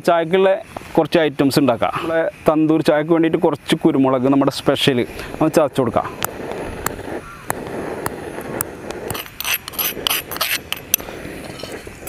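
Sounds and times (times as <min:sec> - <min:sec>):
pestle grinding in stone mortar: 0:06.2 - 0:12.0
sharp clicks of peppercorns: 0:06.2 - 0:12.0.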